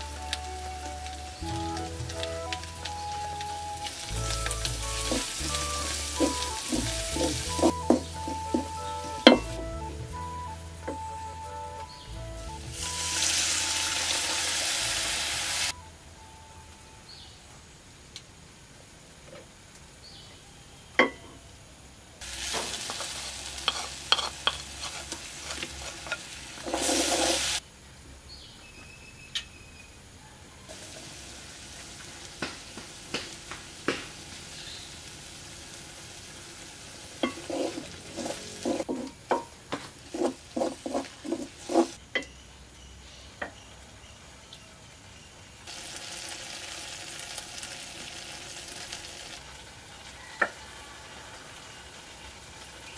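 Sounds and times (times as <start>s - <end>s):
chicken sizzling in a wok: 0.0s - 15.8s, 17.8s - 27.6s, 30.2s - 52.9s
spoon scraping a pan: 4.4s - 9.5s, 22.5s - 27.6s, 37.2s - 42.3s.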